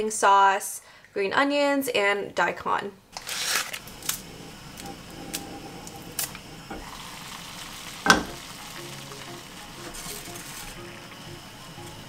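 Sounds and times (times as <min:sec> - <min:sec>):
saucepan of water hissing: 0:03.7 - 0:12.0
metal pan lid clattering: 0:08.0 - 0:08.5.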